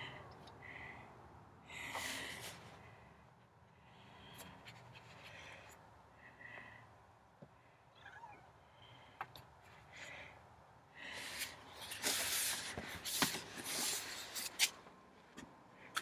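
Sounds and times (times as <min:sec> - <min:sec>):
cat meowing faintly: 0:08.0 - 0:08.5.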